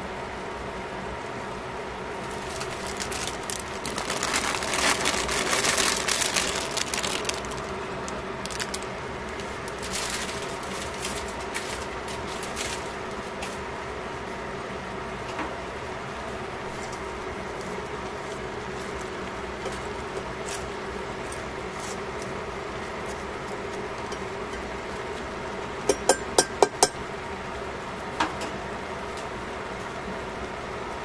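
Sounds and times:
steady hum: 0:00.0 - 0:31.0
vegetables crackling in hot pan: 0:02.2 - 0:12.8.

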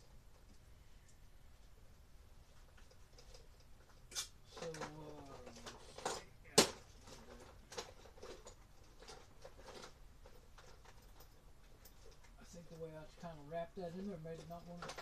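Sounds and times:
hard items clicking and knocking: 0:02.6 - 0:13.3, 0:14.2 - 0:15.0.

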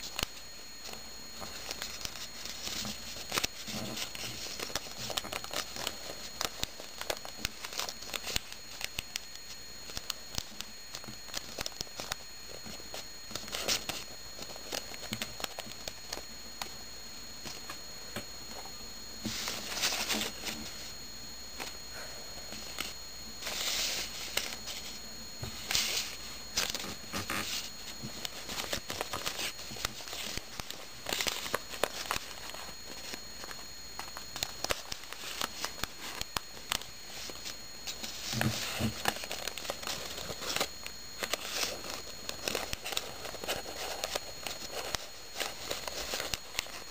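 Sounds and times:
paper rustling and crinkling: 0:00.0 - 0:16.3, 0:17.4 - 0:21.0, 0:22.5 - 0:46.9.

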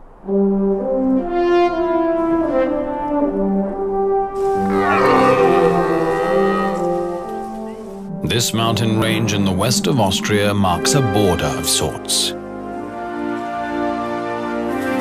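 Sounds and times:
french horn melody: 0:00.1 - 0:15.0
orchestral music: 0:00.2 - 0:15.0
red deer stag roaring: 0:04.4 - 0:07.4.

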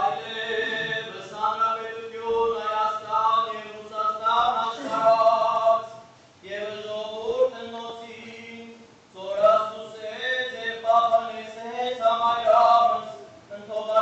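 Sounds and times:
men chanting a hymn: 0:00.0 - 0:14.0.

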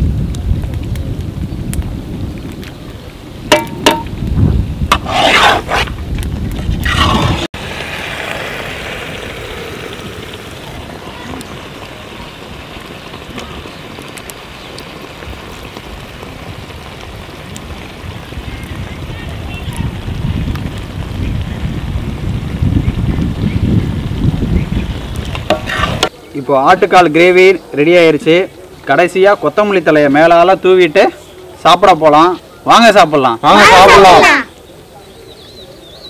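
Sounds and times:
gravy sizzling in pan: 0:01.8 - 0:05.9, 0:06.7 - 0:32.3
metal ladle scraping iron pan: 0:04.9 - 0:05.9, 0:25.5 - 0:26.1.

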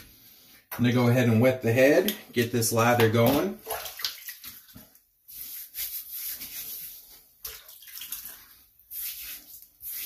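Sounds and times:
water splashing on head: 0:03.0 - 0:04.9, 0:07.4 - 0:09.3.

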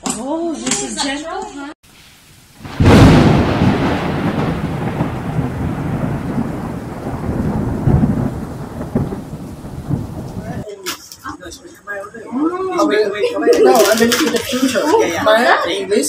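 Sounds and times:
rain hissing: 0:01.8 - 0:11.2
thunder crash and rumble: 0:02.6 - 0:10.6.

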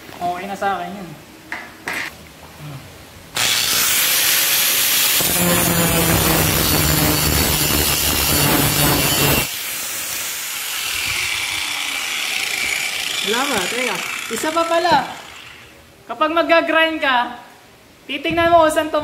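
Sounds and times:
angle grinder running: 0:03.4 - 0:15.8
grinding disc rasping on steel: 0:03.5 - 0:09.5, 0:10.6 - 0:15.7.

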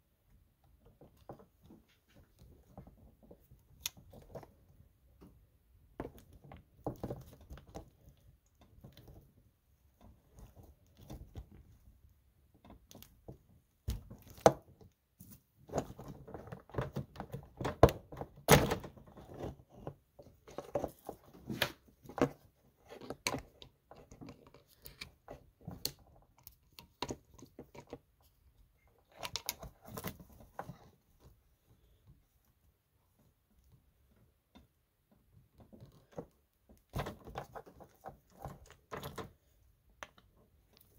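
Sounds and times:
clicks and knocks of parts: 0:15.7 - 0:28.2, 0:29.0 - 0:30.8.

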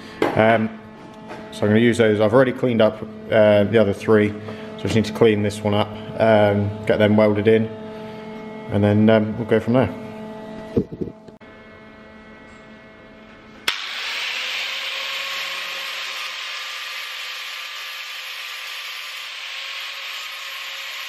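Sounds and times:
angle grinder grinding metal: 0:13.6 - 0:21.0.

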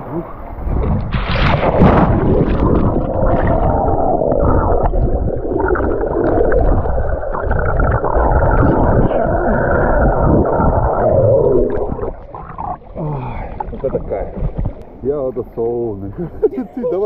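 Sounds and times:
bubbles and rushing water: 0:00.0 - 0:16.1
muffled underwater rumble: 0:00.0 - 0:17.0
splash into water: 0:00.6 - 0:03.8.

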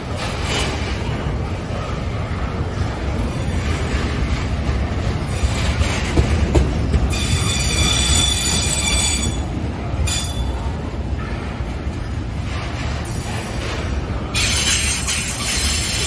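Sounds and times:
train wheels rumbling on rails: 0:00.0 - 0:16.0
high wheel squeal: 0:07.1 - 0:09.5.

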